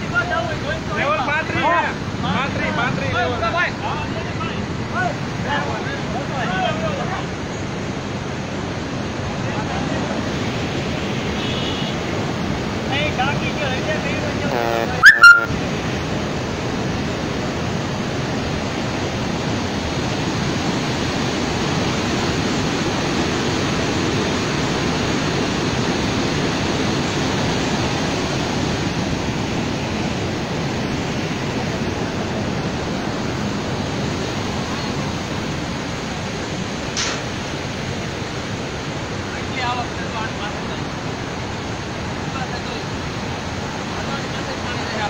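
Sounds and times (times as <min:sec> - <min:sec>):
water rushing through spillway: 0:15.6 - 0:45.0.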